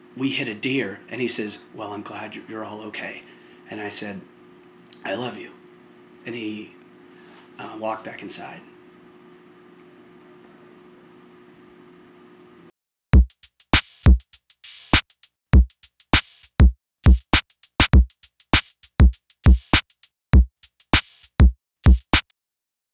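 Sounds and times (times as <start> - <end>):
faint room hum: 0.0 - 12.7
drum machine beat: 13.2 - 22.3.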